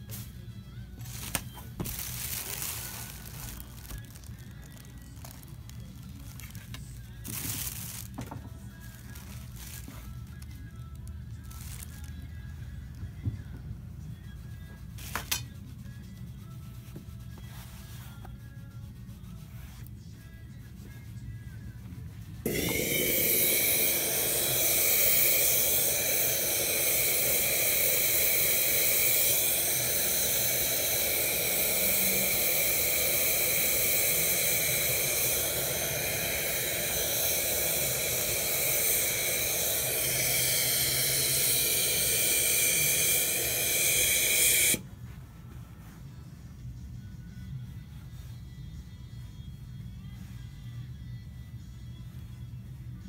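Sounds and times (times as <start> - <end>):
steamer blowing steam: 22.4 - 44.9.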